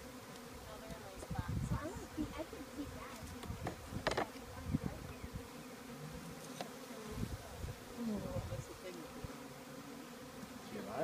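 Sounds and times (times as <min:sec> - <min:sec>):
bees buzzing hum: 0:00.0 - 0:11.0
hive tool knocking and scraping: 0:03.0 - 0:04.5, 0:06.4 - 0:06.8.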